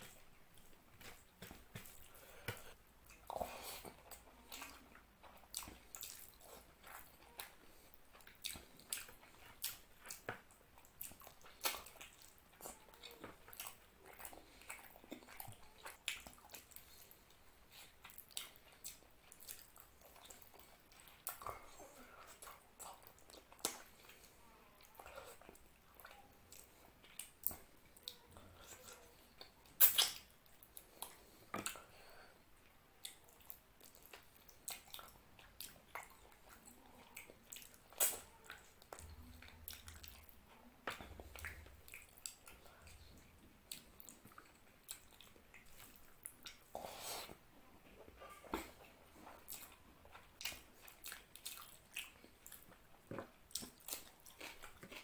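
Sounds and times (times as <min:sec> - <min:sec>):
wet mouth smacks while chewing: 0:29.4 - 0:31.8, 0:33.0 - 0:43.0.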